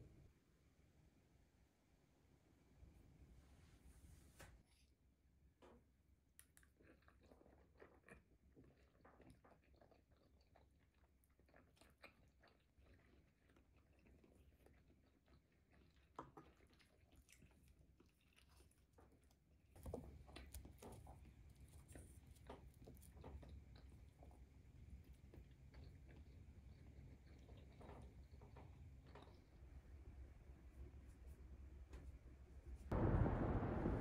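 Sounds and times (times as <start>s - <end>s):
faint chewing: 6.3s - 30.0s.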